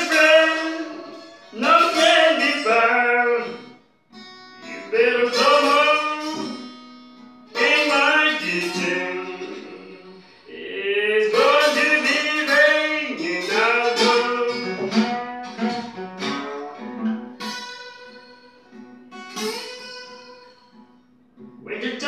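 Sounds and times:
acoustic guitar slow blues: 0.0 - 22.0.

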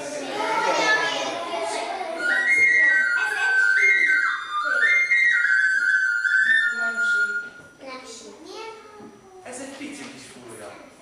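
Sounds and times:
high whistle-like notes: 2.2 - 7.8.

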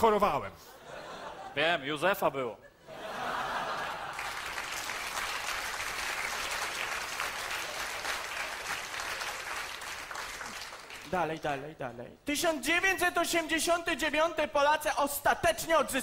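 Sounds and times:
audience applauding: 3.7 - 11.4.

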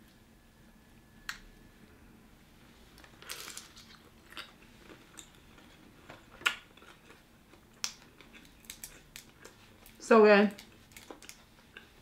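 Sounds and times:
wet mouth smacks and chewing: 6.1 - 10.0.

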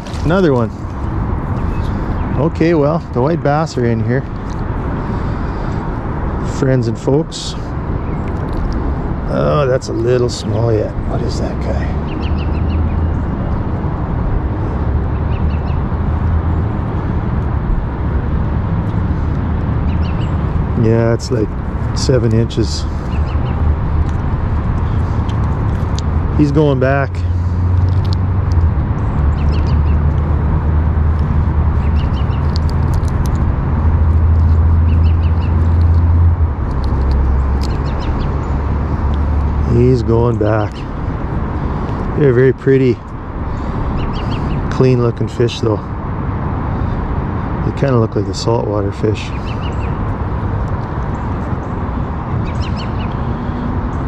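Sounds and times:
low rumbling outdoor background: 0.0 - 54.0
small bird chirps: 29.0 - 30.1, 31.8 - 33.2, 34.8 - 35.8, 37.2 - 38.6, 43.5 - 44.7, 49.2 - 50.0, 52.4 - 53.2.

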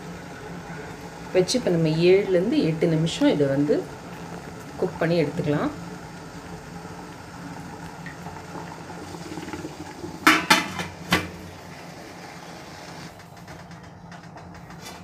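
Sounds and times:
water boiling hiss: 0.0 - 13.2
metal pot clanking: 10.2 - 11.4.

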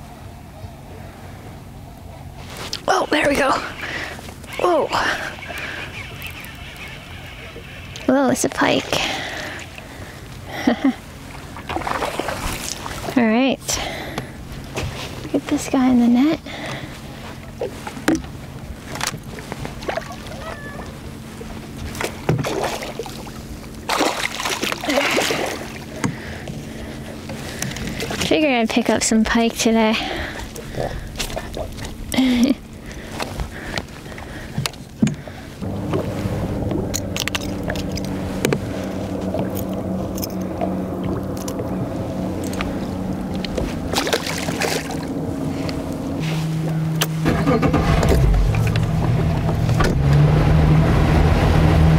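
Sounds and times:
steady low hum: 0.0 - 51.9
fish thrashing and splashing: 11.3 - 13.2, 18.8 - 21.1, 21.8 - 28.3, 30.4 - 45.7.

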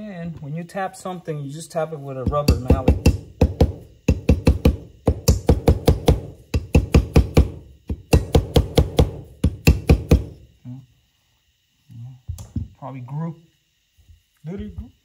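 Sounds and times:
rubber mallet knocking on metal: 2.2 - 10.3.

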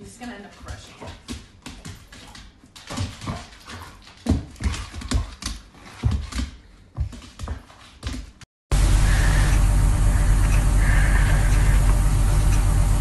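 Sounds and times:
dog paws thumping on wooden floor: 0.0 - 8.4.

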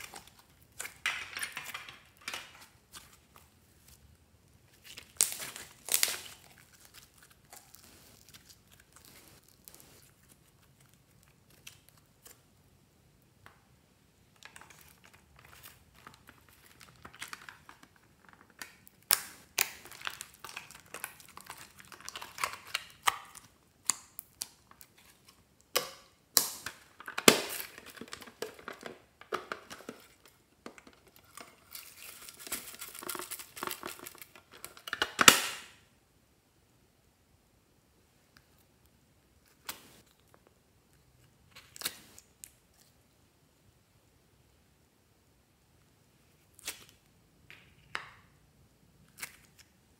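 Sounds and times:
slime crackling and popping: 4.7 - 12.3, 14.4 - 24.9.

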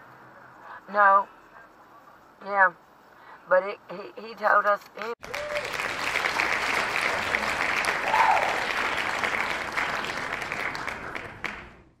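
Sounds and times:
crowd applause: 5.2 - 11.9.

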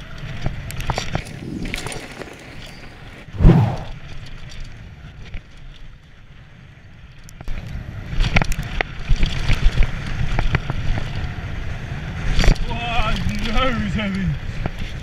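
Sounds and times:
bike tyres rumbling on dirt: 0.5 - 4.0
wind on the microphone: 3.3 - 4.0
bike clicking and rattling: 8.2 - 11.6.

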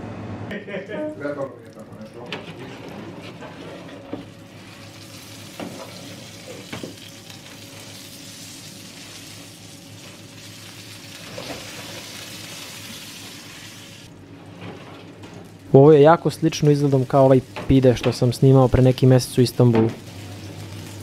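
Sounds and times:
flatbreads sizzling on tray: 4.2 - 14.1, 20.0 - 21.0.

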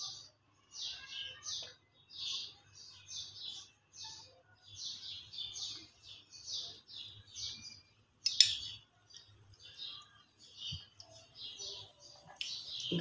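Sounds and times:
small bird chirping: 0.0 - 13.0
metal spoon clinking glass bowl: 8.2 - 8.8.

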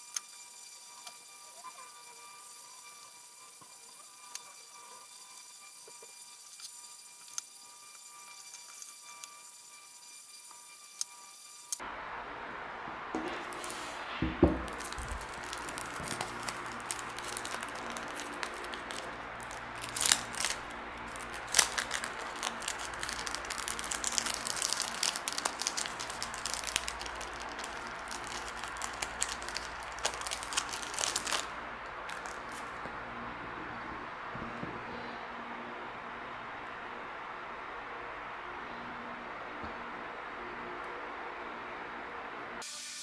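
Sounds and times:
plastic film crinkling: 13.3 - 32.8.

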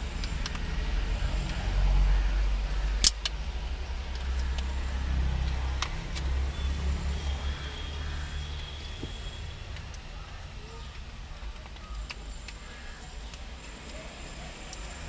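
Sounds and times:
plastic clicks and snaps: 2.9 - 3.4, 4.1 - 4.7, 10.8 - 12.6.

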